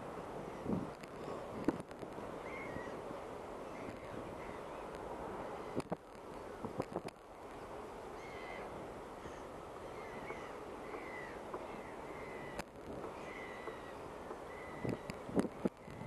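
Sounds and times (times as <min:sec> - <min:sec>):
steady harbour hiss: 0:00.0 - 0:16.0
gulls calling: 0:02.4 - 0:06.0, 0:07.6 - 0:16.0.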